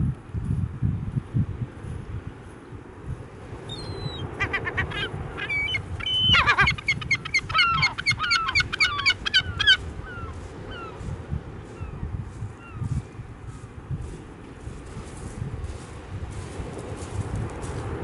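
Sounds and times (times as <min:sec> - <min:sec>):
gulls calling: 0:03.7 - 0:11.0.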